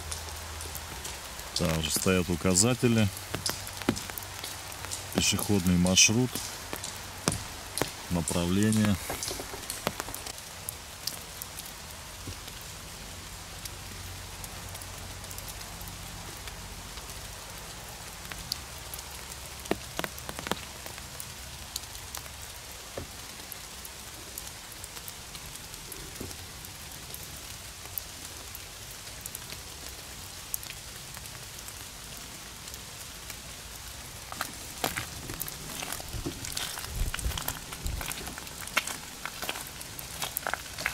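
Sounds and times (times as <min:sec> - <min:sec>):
rain on leaves: 0:00.0 - 0:40.9.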